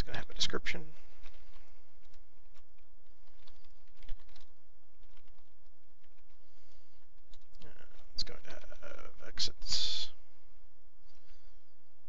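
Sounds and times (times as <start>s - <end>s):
steady low hum: 0.0s - 12.0s
keyboard typing clicks: 2.0s - 6.4s, 7.1s - 8.7s.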